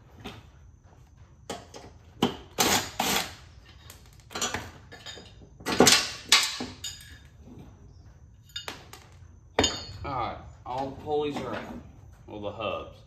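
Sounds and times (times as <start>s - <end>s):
metal parts clanking: 3.7s - 7.4s.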